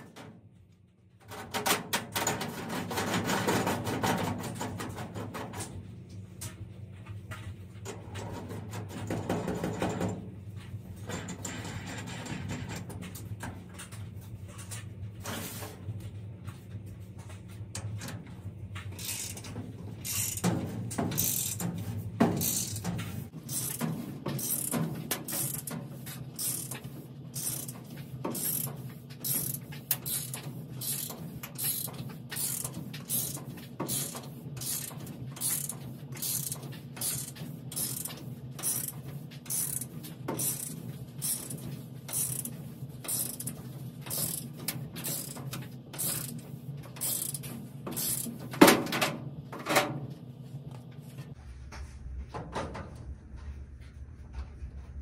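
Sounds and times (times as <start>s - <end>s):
hand ratchet clicking: 19.0s - 20.5s, 21.1s - 21.7s, 22.3s - 22.9s, 23.5s - 23.8s, 24.4s - 25.8s, 26.4s - 48.3s.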